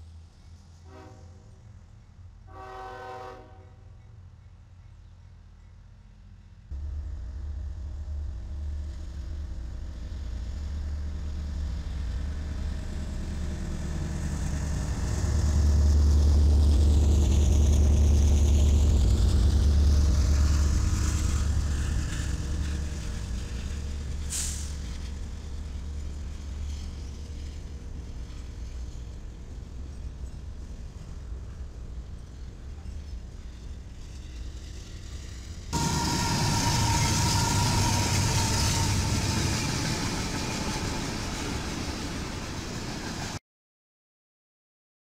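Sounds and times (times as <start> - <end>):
freight train rumbling past: 0.0 - 43.4
high squeal: 35.8 - 42.6.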